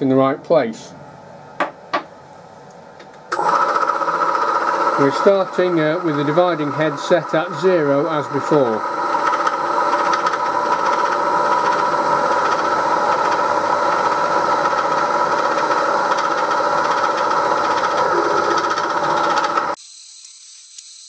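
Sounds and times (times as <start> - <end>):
milling machine gear whine: 3.3 - 20.9.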